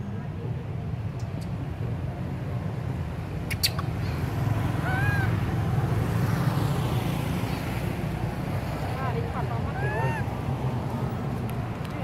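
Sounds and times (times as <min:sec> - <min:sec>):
infant monkey squeak: 0:04.8 - 0:05.3.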